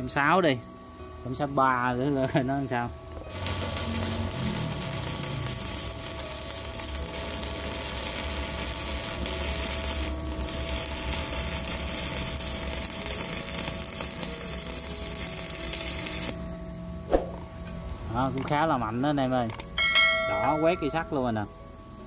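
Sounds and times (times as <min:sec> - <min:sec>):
welding arc crackling: 0:03.1 - 0:16.4.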